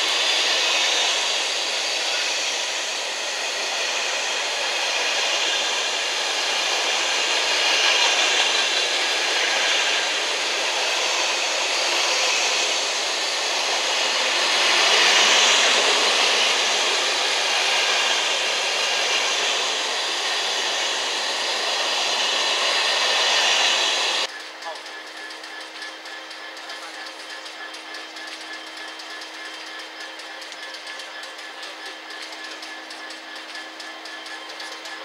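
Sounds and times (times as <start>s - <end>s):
freight train wheels on rails: 0.0s - 35.0s.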